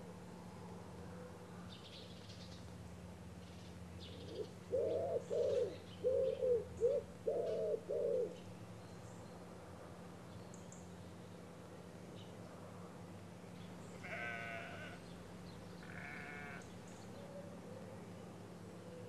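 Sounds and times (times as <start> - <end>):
pigeon cooing: 4.2 - 8.4.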